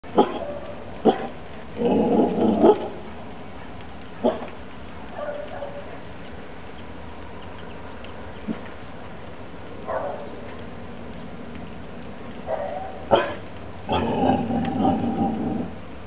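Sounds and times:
puppy barking: 0:00.1 - 0:01.3, 0:02.6 - 0:03.0, 0:04.2 - 0:04.5, 0:05.1 - 0:05.9, 0:09.8 - 0:10.4, 0:12.4 - 0:13.4.

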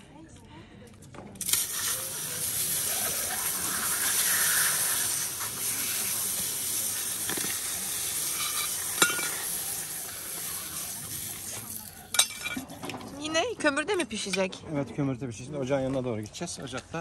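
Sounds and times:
water hissing from a hose: 0:01.4 - 0:12.9.

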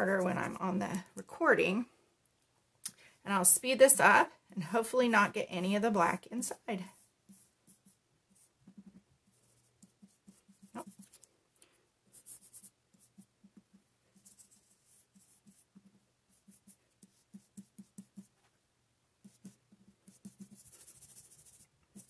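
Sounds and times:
stencil brush tapping paper: 0:06.5 - 0:11.2, 0:12.1 - 0:18.5, 0:19.2 - 0:22.0.

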